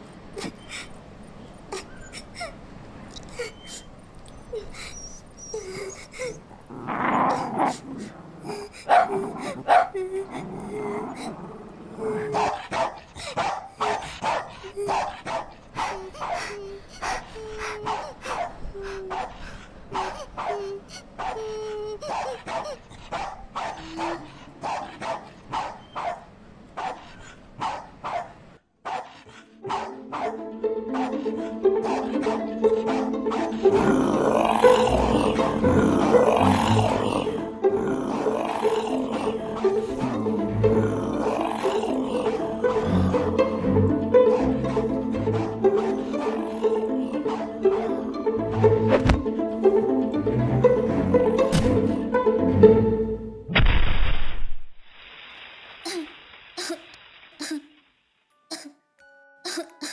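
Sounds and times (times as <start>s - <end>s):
cartoon dog growling: 5.6s - 12.7s, 23.7s - 24.4s, 31.0s - 49.9s
cartoon dog barking: 8.9s - 10.0s, 12.1s - 19.3s, 19.9s - 26.2s, 27.6s - 37.4s, 44.2s - 48.1s
music: 29.3s - 53.5s, 58.3s - 59.9s.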